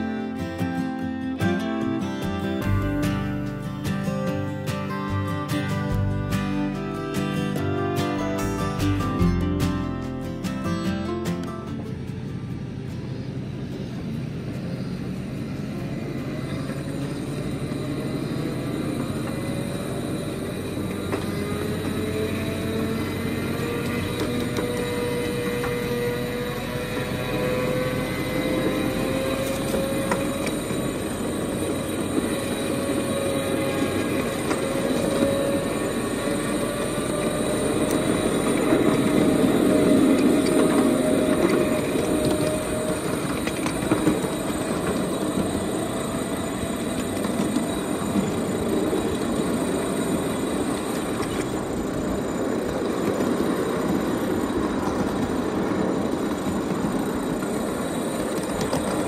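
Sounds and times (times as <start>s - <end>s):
thin whine: 0.0s - 59.0s
train wheels clattering on rails: 7.1s - 59.0s.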